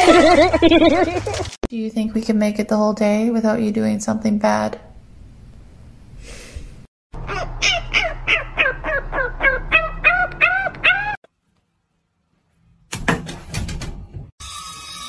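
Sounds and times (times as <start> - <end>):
puppy yelping: 7.2 - 11.2
knocks and rustling: 12.9 - 14.3.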